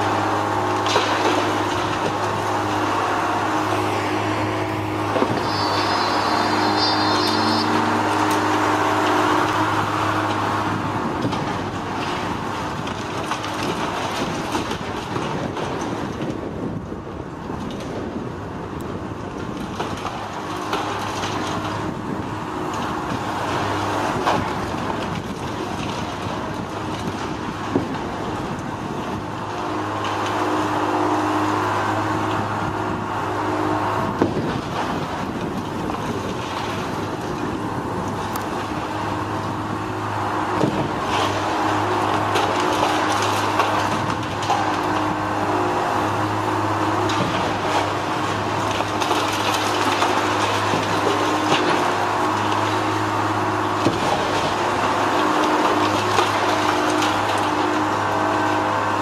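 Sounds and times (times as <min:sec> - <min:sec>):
diesel machinery engine running: 0:00.0 - 0:59.0.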